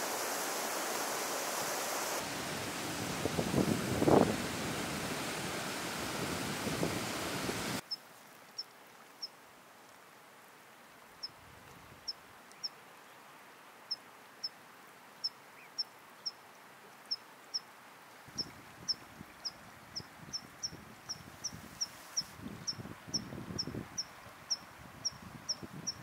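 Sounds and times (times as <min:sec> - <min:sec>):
running water hiss: 0:00.0 - 0:26.0
wind gusts on microphone: 0:01.6 - 0:07.8, 0:18.3 - 0:26.0.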